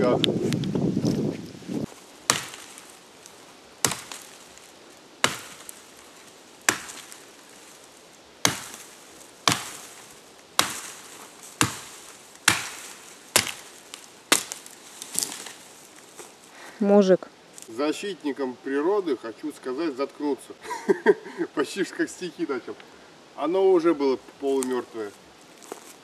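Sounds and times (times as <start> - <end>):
axe chopping dry wood: 2.2 - 2.9, 3.8 - 4.6, 5.2 - 6.0, 6.6 - 7.5, 8.4 - 15.6.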